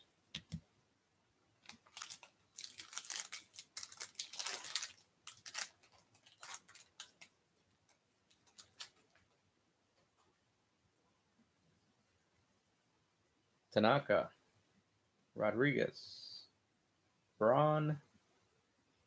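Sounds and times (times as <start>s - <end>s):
foil wrapper crinkling: 1.6s - 7.3s, 8.3s - 9.2s
foil wrapper tearing: 1.7s - 7.3s, 8.3s - 9.0s.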